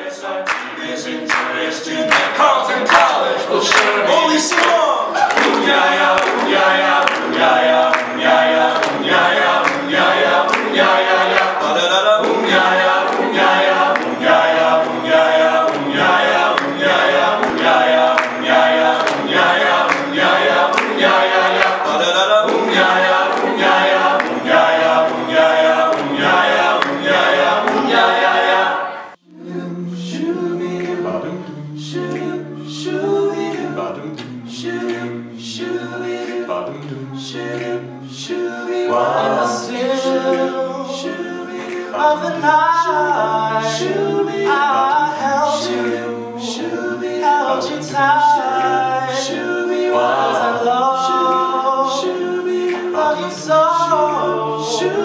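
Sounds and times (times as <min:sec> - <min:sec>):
male group singing in harmony: 0:00.0 - 0:04.8, 0:05.4 - 0:55.0
steady clicking beat: 0:05.5 - 0:28.5, 0:51.1 - 0:54.9.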